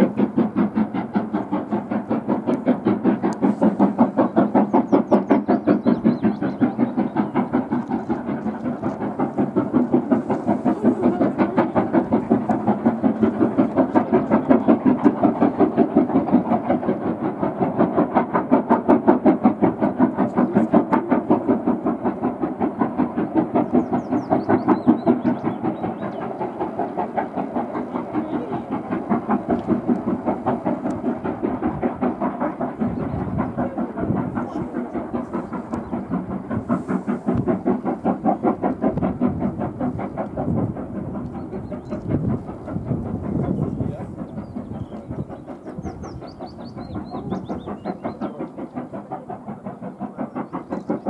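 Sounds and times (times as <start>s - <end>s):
steam locomotive chuffing: 0.0s - 51.0s.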